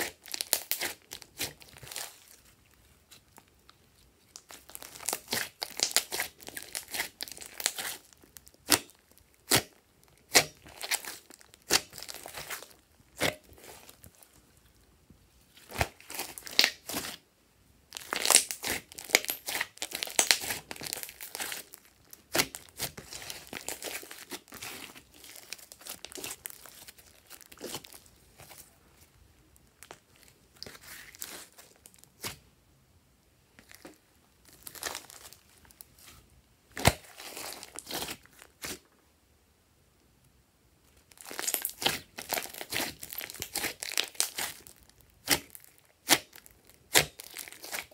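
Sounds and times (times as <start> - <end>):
slime popping and crackling: 0.0 - 2.5, 4.3 - 14.2, 15.6 - 17.2, 17.9 - 28.6, 41.1 - 47.9
hands kneading slime: 0.0 - 17.2, 17.9 - 32.5, 33.6 - 38.8, 41.0 - 47.9.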